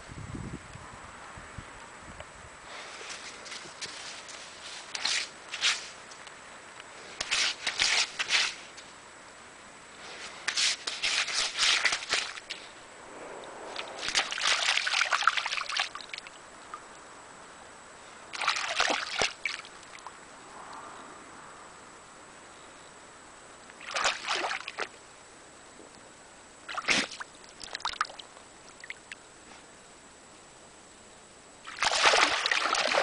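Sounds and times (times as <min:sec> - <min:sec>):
dog digging in wet sand: 0:10.2 - 0:12.8, 0:13.7 - 0:15.9
water sloshing: 0:13.4 - 0:16.9, 0:18.3 - 0:20.1, 0:23.8 - 0:25.0, 0:31.6 - 0:33.0.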